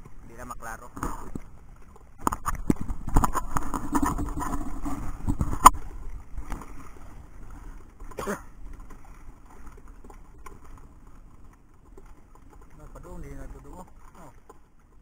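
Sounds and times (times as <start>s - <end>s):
fishing gear knocks and clicks: 0.9s - 5.8s.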